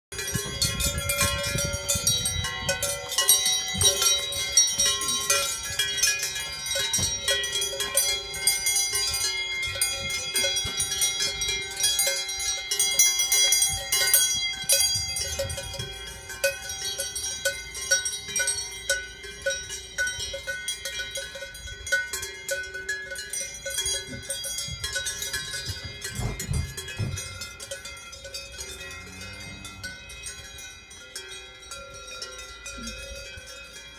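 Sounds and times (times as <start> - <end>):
cowbells clanging: 0.1 - 33.9.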